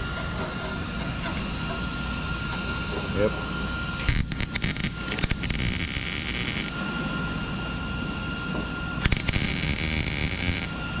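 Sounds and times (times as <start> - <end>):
welding arc crackling: 3.9 - 6.8, 9.0 - 11.0.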